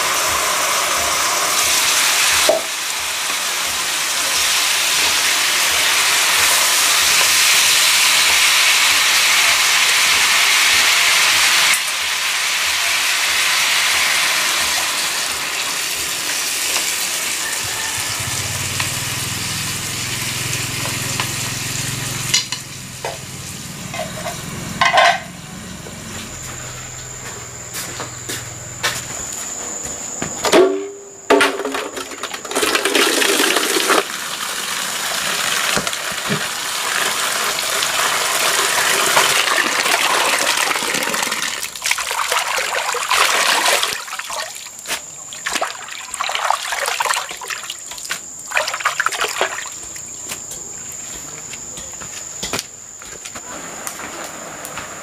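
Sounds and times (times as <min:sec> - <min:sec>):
chicken sizzling in a frying pan: 0:00.0 - 0:25.9, 0:32.6 - 0:46.2
water running into metal basin: 0:31.5 - 0:50.0.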